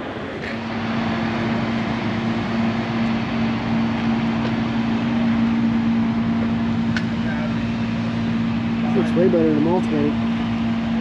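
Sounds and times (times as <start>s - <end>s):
dump truck engine humming: 0.0s - 11.0s.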